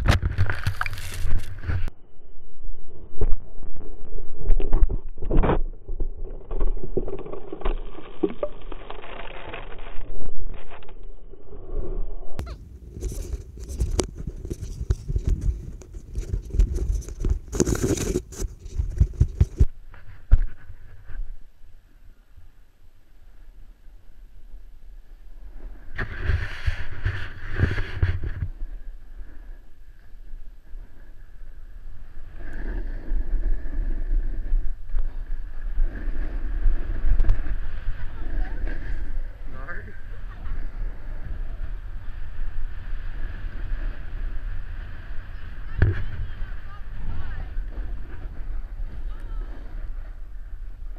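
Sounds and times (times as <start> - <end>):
scraping against camera: 0.0 - 1.9, 4.4 - 21.3, 25.9 - 28.6
snow and clothing rubbing camera: 0.0 - 1.9, 12.4 - 21.2, 26.0 - 28.6
snowboard scraping packed snow: 0.0 - 1.9, 12.9 - 21.3, 25.4 - 29.6, 31.8 - 50.9
wind on microphone: 0.0 - 21.6, 25.1 - 50.9.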